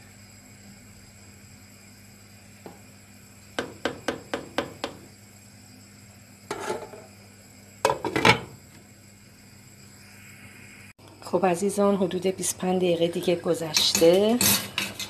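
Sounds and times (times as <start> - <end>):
utensil scraping pot: 6.5 - 7.1.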